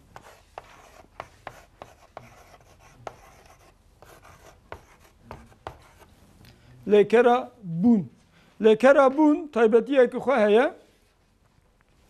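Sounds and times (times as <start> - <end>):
chalk scratching on blackboard: 0.0 - 6.2
chalk tapping on blackboard: 0.1 - 6.1.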